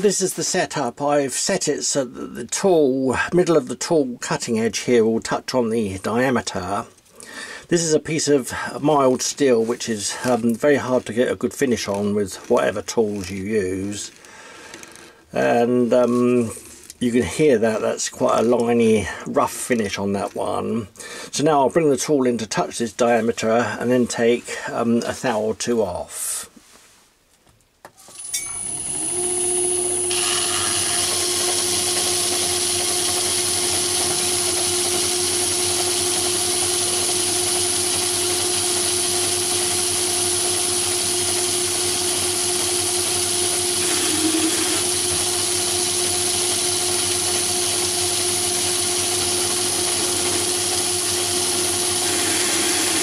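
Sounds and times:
metal lathe whining: 0:28.2 - 0:53.0.

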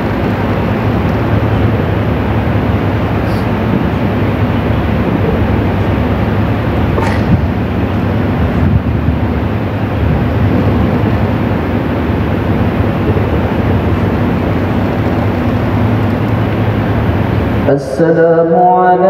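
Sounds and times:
low rumble: 0:00.0 - 0:18.4
hiss: 0:03.2 - 0:03.6.

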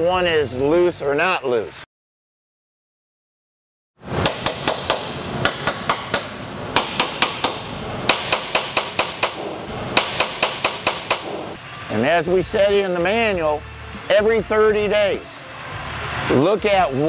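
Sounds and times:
hammer tapping metal bolts: 0:04.2 - 0:11.4.

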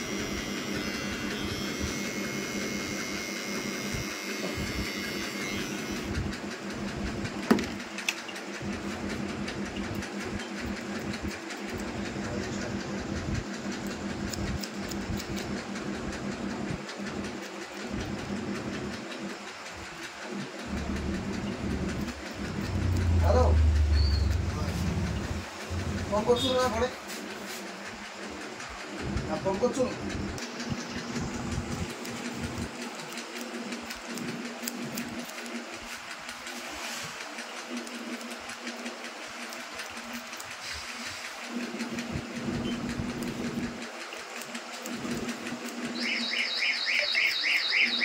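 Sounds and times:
electric hair trimmer buzzing: 0:00.0 - 0:06.2.

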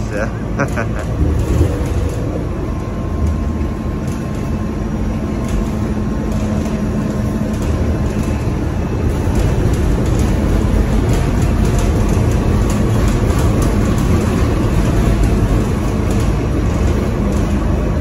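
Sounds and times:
bus engine and road rumble: 0:00.0 - 0:18.0
low hum: 0:00.0 - 0:18.0.

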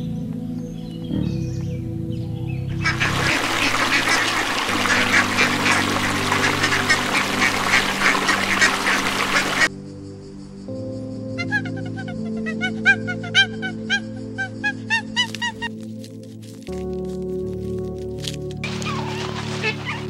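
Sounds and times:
background music: 0:00.0 - 0:20.0
ducks quacking: 0:02.7 - 0:09.7, 0:18.6 - 0:20.0.

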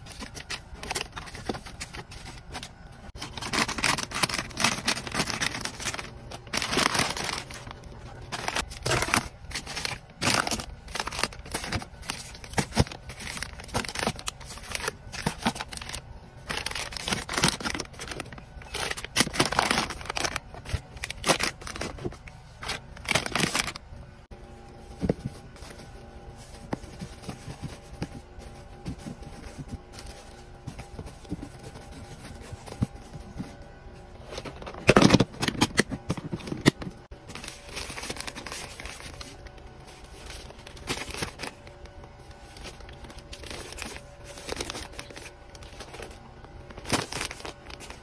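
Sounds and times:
plastic packaging crinkling: 0:00.0 - 0:23.8, 0:34.2 - 0:48.0
plastic rustling: 0:00.0 - 0:48.0.

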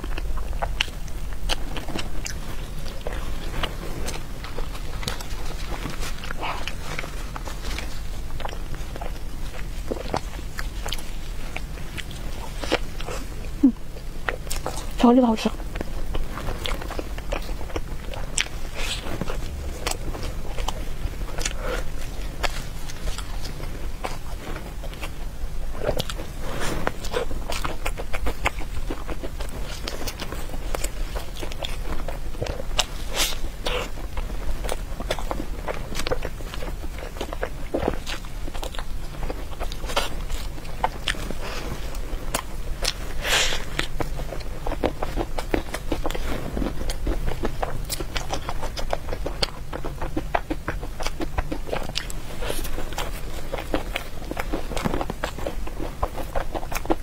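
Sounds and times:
chewing mouth clicks and smacks: 0:15.7 - 0:25.2, 0:25.8 - 0:57.0.

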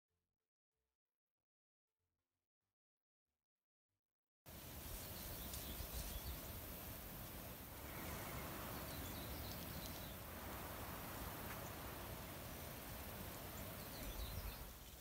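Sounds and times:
steady background hiss: 0:04.5 - 0:15.0.

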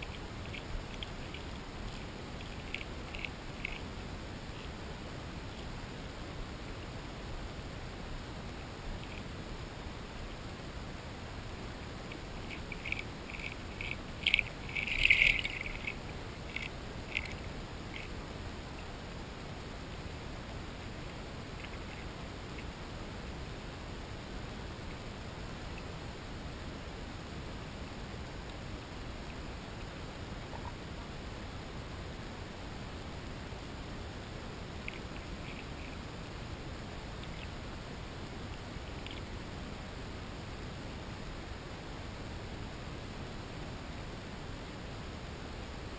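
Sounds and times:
fish crunching food underwater: 0:00.0 - 0:04.0, 0:12.1 - 0:18.2, 0:34.8 - 0:36.0
steady hiss: 0:00.0 - 0:45.9.

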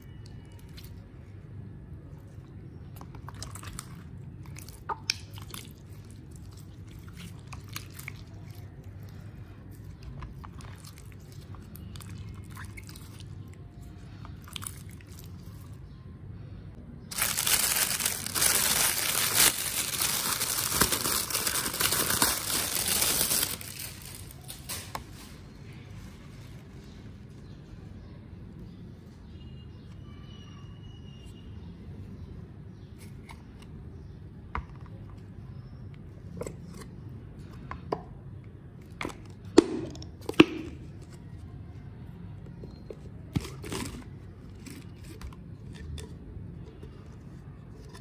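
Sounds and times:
slime squishing and crackling: 0:02.7 - 0:15.8, 0:17.1 - 0:25.2, 0:43.2 - 0:47.9.

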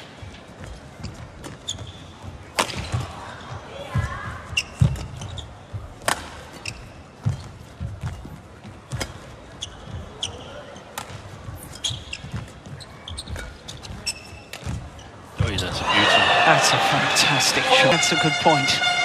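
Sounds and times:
shoes squeaking on court: 0:00.6 - 0:03.5, 0:04.4 - 0:05.8, 0:06.4 - 0:15.4.

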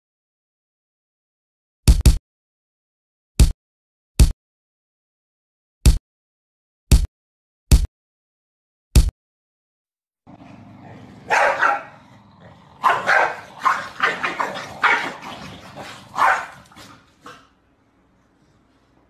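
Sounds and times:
dog barking: 0:11.2 - 0:17.6.

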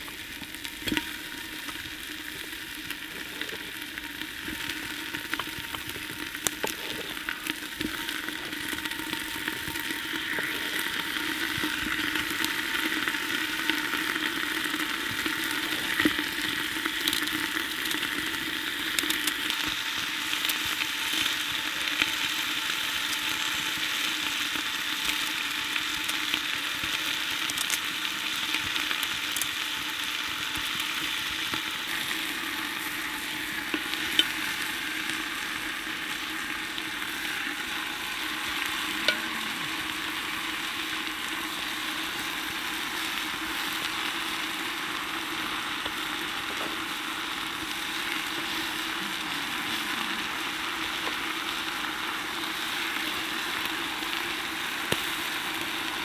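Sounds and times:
meat sizzling in hot fat: 0:00.0 - 0:56.0
fat popping: 0:39.0 - 0:39.9.

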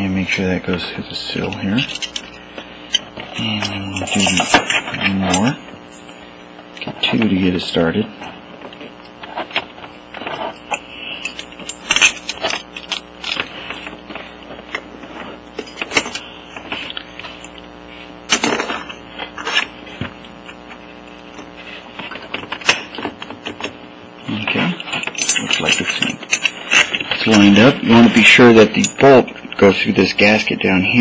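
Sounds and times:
bolts clinking on metal: 0:03.6 - 0:05.5, 0:10.7 - 0:13.5, 0:24.8 - 0:27.6.

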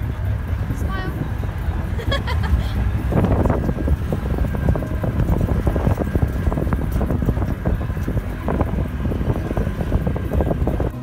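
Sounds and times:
vehicle engine rumble: 0:00.0 - 0:11.0
vehicle rattles and knocks: 0:00.0 - 0:11.0
wind buffeting microphone: 0:00.0 - 0:11.0.

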